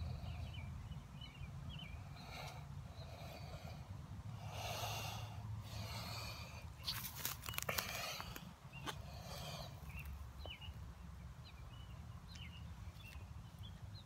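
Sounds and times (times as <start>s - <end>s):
person breathing hard: 2.0s - 10.0s.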